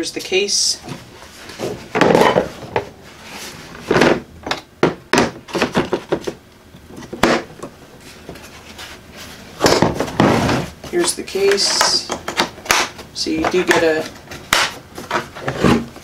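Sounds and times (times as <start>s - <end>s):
tools knocking and clattering: 9.6s - 15.3s.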